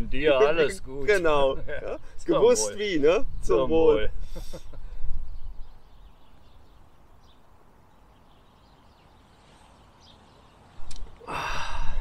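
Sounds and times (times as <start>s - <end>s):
faint bird chirps: 3.2s - 11.3s.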